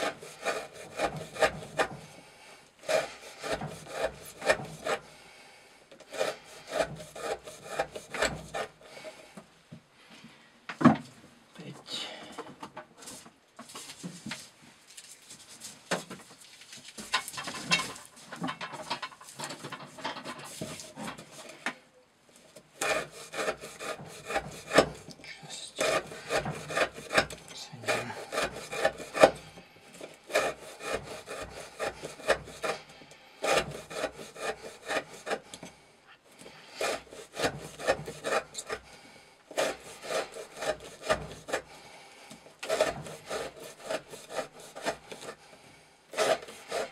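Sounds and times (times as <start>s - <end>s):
knife shaving wood: 0.0s - 5.2s, 5.9s - 9.3s, 20.2s - 21.6s, 22.3s - 46.9s.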